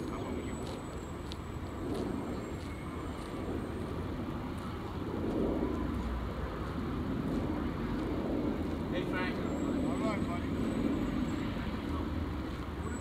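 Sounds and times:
city background rumble: 0.0s - 13.0s.

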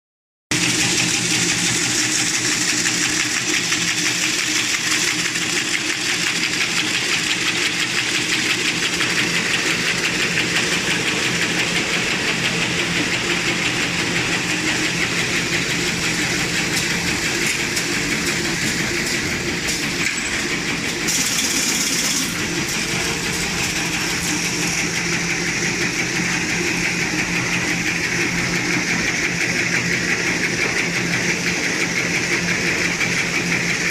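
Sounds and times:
rapid mechanical clatter: 0.5s - 33.9s.

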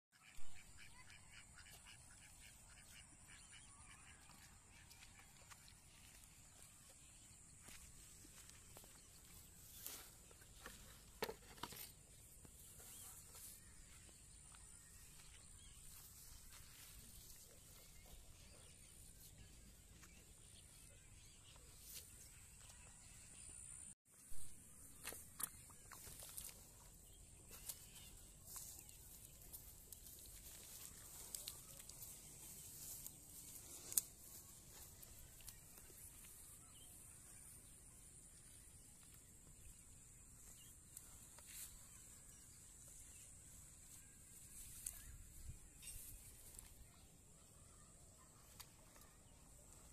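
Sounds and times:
footsteps rustling through wet grass: 1.3s - 23.2s, 24.8s - 49.9s
hands rustling in wet grass: 25.0s - 36.7s.

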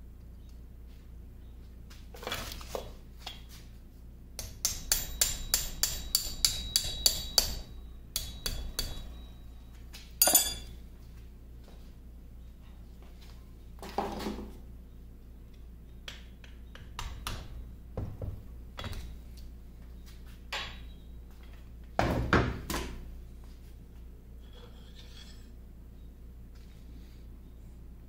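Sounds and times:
metal tool clanking on iron: 10.2s - 10.7s.

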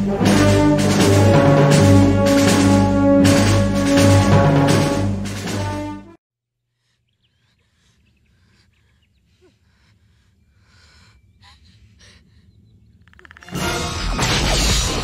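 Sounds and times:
music: 0.0s - 6.2s, 13.4s - 15.0s
small bird chirps: 6.8s - 11.7s.

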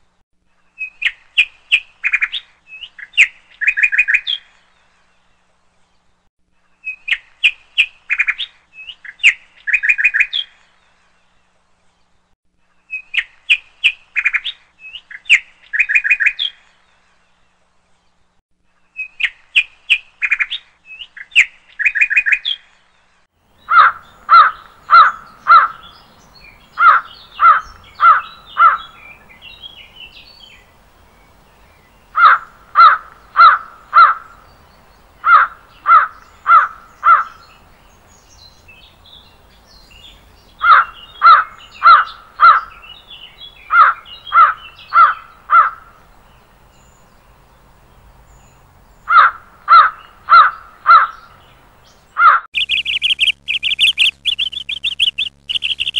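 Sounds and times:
small birds chirping: 12.8s - 55.9s
crow cawing: 23.7s - 25.9s, 26.8s - 28.9s, 32.2s - 34.3s, 35.2s - 37.4s, 40.6s - 42.8s, 43.7s - 45.9s, 49.1s - 51.2s, 52.2s - 52.5s.

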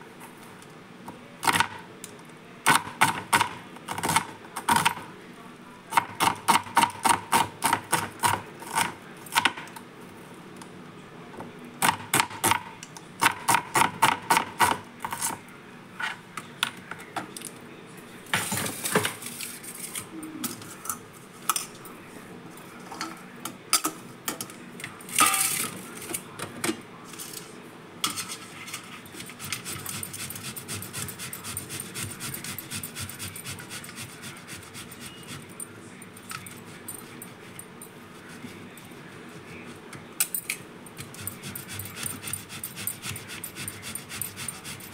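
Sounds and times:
potato scraping on grater: 29.3s - 35.4s.

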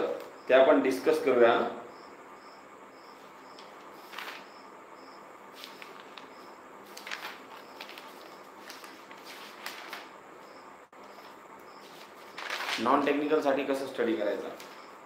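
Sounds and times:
cricket chirping: 0.0s - 13.4s, 14.3s - 15.0s
rustles: 3.2s - 4.5s, 5.5s - 10.1s, 11.1s - 12.9s.

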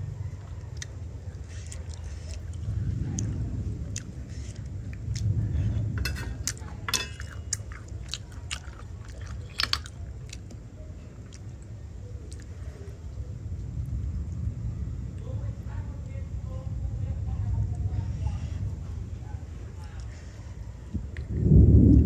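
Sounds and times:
steady low rumble: 0.0s - 22.0s
chewing and biting: 0.4s - 5.4s, 6.3s - 12.9s.

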